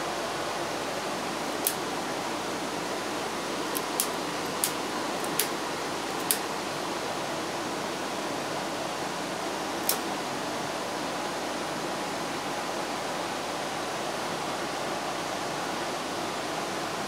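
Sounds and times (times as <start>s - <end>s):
steady hiss: 0.0s - 17.0s
switches clicking: 1.6s - 1.8s, 3.7s - 5.6s, 6.2s - 6.5s, 9.8s - 10.1s.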